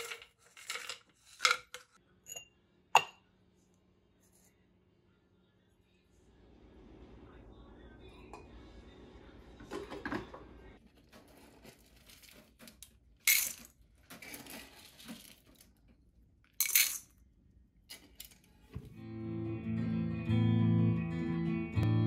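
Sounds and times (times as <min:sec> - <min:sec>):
kibble rattling into bowls: 0:00.0 - 0:02.0, 0:11.2 - 0:15.7.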